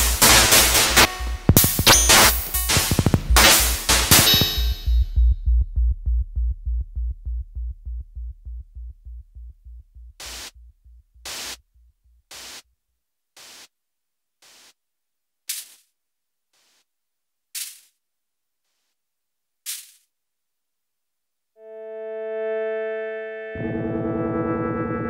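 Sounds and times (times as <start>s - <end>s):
low electronic pulse: 0.2s - 12.4s, 21.6s - 25.0s
short bursts of hiss: 10.2s - 10.5s, 11.3s - 11.6s, 12.3s - 12.6s, 13.4s - 13.7s, 14.4s - 14.8s.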